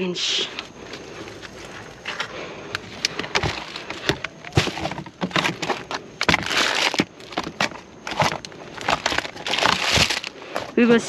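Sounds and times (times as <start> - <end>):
plastic baskets knocking: 2.8 - 10.7
plastic wrap rustling: 2.8 - 10.8.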